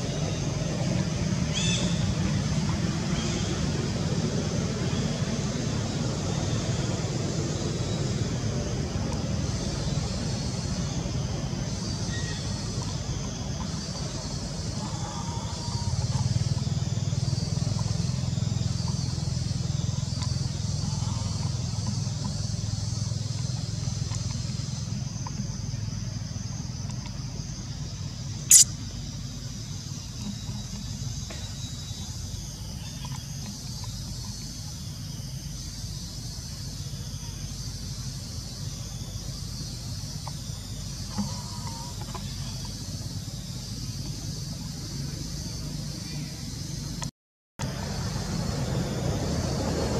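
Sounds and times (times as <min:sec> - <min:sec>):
small engine running: 0:00.0 - 0:26.8
steady high hiss: 0:21.6 - 0:30.2
faint chirps: 0:27.9 - 0:46.8
high hiss: 0:28.5 - 0:28.8.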